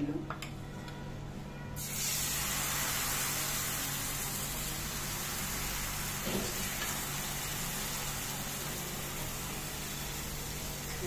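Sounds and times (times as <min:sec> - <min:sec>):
batter sizzling in a frying pan: 0:01.8 - 0:11.0.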